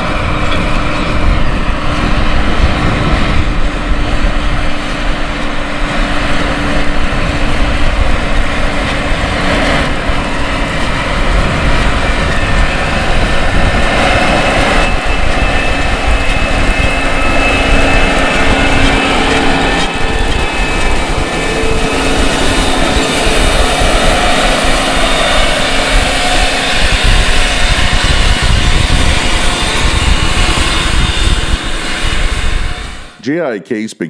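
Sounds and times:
tractor diesel engine under load: 0.0s - 33.9s.

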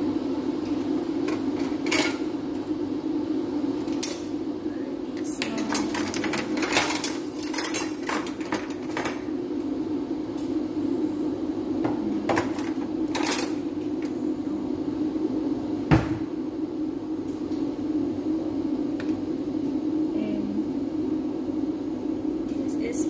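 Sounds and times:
low kitchen hum: 0.0s - 23.0s
kitchen things clicking and knocking: 5.2s - 9.2s.

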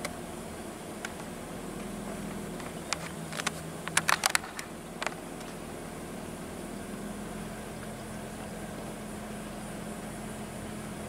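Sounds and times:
car engine and road hum: 0.0s - 11.0s
sharp clicks: 2.6s - 5.6s.

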